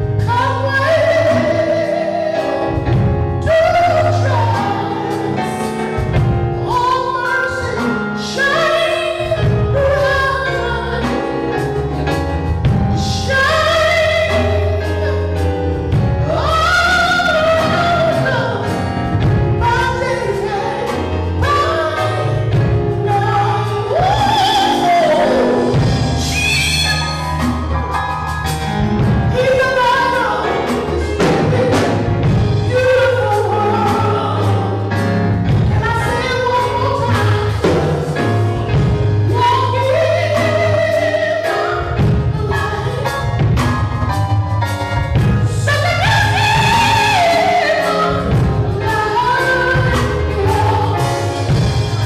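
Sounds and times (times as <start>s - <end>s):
conga drums: 0.0s - 52.0s
keyboard: 0.0s - 52.0s
woman singing into a microphone: 0.2s - 27.2s, 29.3s - 44.2s, 45.1s - 52.0s.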